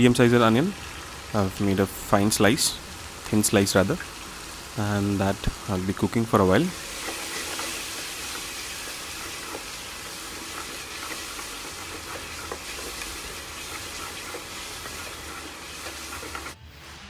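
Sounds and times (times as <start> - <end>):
onions sizzling in oil: 0.0 - 16.6
spatula scraping and tapping pan: 7.0 - 16.6.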